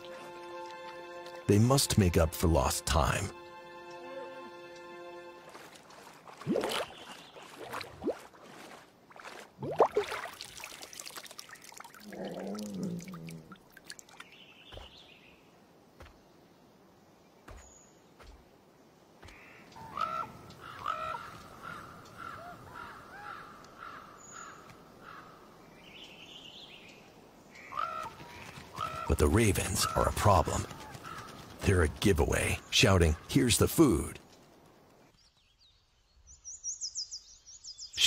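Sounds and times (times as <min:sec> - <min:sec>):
ravens croaking: 0:12.0 - 0:13.7, 0:19.3 - 0:25.5, 0:27.5 - 0:34.1.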